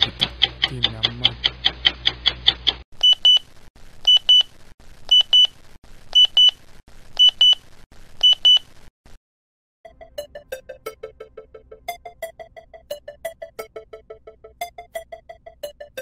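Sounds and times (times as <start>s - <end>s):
digital alarm clock beeping: 3.0s - 3.4s, 4.0s - 4.5s, 5.1s - 5.5s, 6.1s - 6.6s, 7.2s - 7.6s, 8.2s - 8.6s, 9.9s - 16.0s
music: 9.8s - 16.0s.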